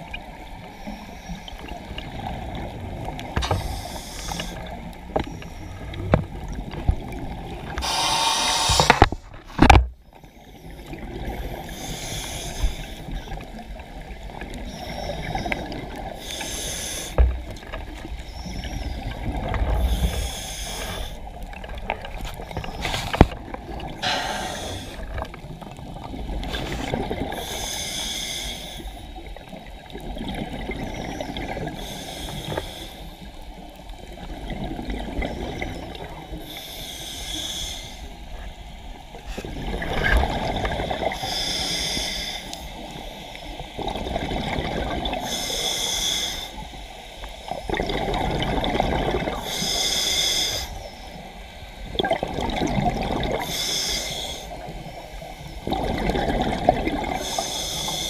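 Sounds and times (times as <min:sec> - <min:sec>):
scuba regulator inhale hiss: 0:03.4 - 0:04.8, 0:07.8 - 0:09.2, 0:10.3 - 0:13.4, 0:14.6 - 0:17.3, 0:19.7 - 0:21.3, 0:24.0 - 0:25.3, 0:26.4 - 0:29.2, 0:31.6 - 0:33.3, 0:36.3 - 0:38.3, 0:41.0 - 0:43.7, 0:45.2 - 0:47.6, 0:49.3 - 0:51.8, 0:53.4 - 0:55.6, 0:57.1 - 0:58.0
exhaled bubbles rushing: 0:23.4 - 0:27.4, 0:39.3 - 0:41.2, 0:43.8 - 0:45.2, 0:47.6 - 0:49.4, 0:51.8 - 0:53.5, 0:55.6 - 0:57.2.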